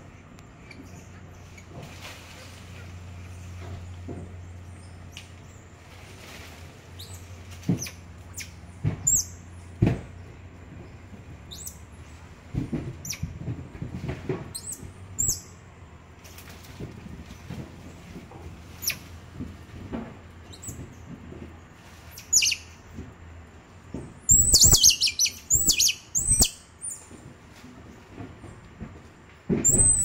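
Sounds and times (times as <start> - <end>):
sharp knocks: 8.8 - 10.2
monkeys peeping: 11.5 - 12.2, 24.3 - 27.1, 29.6 - 30.0.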